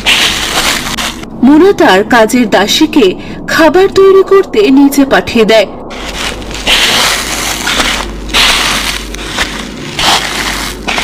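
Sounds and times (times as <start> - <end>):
crunching: 0.0 - 1.3, 5.9 - 11.0
steady low hum: 0.0 - 11.0.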